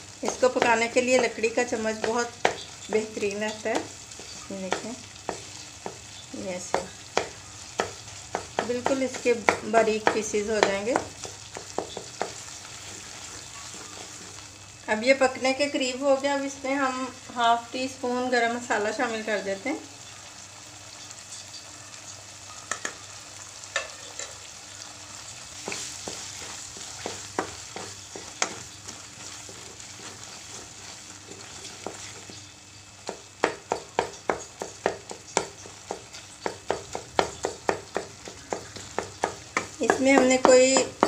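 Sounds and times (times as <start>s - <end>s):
food sizzling in oil: 0.0s - 41.0s
wooden spoon scraping a wok: 0.3s - 14.5s, 23.8s - 41.0s.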